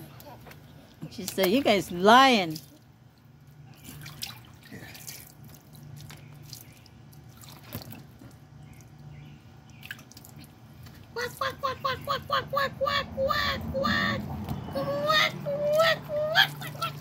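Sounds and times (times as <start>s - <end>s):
steady low hum: 0.0s - 17.0s
water splashing and dripping: 2.4s - 9.0s, 9.7s - 11.5s.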